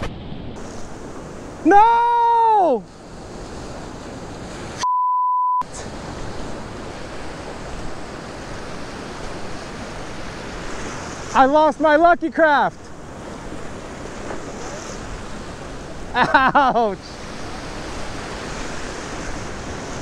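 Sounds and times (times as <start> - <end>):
surf washing at water's edge: 0.0 - 4.8, 5.6 - 20.0
person crying out: 1.7 - 2.8
censor bleep: 4.8 - 5.7.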